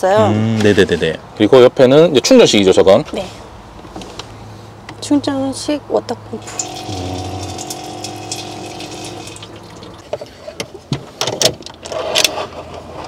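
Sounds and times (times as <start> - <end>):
water running into sink: 6.4 - 10.0
water pump whirring: 6.4 - 10.6.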